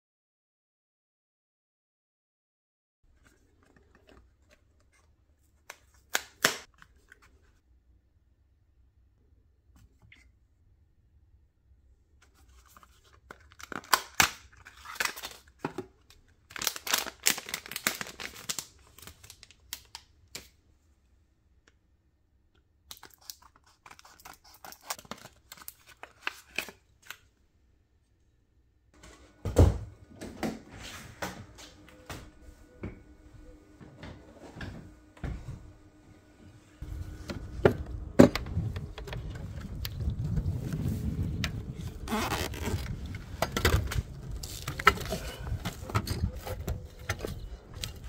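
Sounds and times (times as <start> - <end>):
packaging rustling and tearing: 12.4 - 20.1, 22.9 - 27.3, 38.8 - 48.0
steady hum: 29.0 - 42.1.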